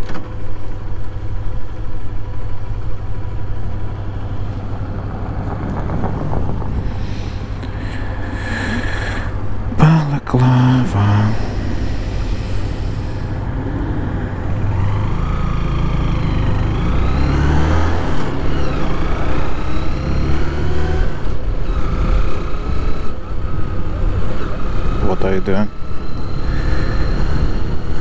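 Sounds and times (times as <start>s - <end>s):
motorcycle engine running: 0.2s - 9.7s.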